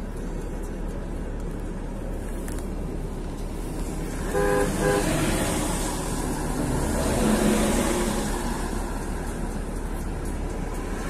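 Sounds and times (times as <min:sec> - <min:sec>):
car road noise on wet road: 0:00.0 - 0:11.0
trucks passing close by: 0:00.0 - 0:11.0.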